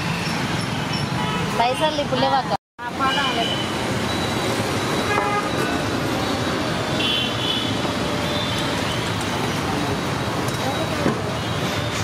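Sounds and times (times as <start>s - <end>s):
road traffic noise: 0.0s - 12.0s
high-pitched horn beep: 4.9s - 5.8s.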